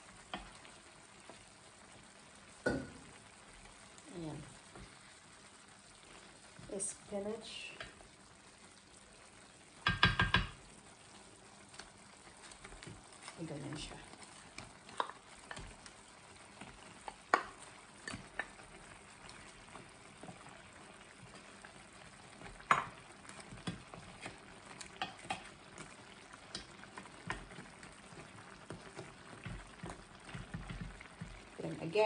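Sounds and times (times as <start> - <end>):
curry bubbling in a pan: 0.0 - 32.0
wooden spoon knocking against pan: 9.8 - 10.6, 22.7 - 23.0, 28.7 - 31.4.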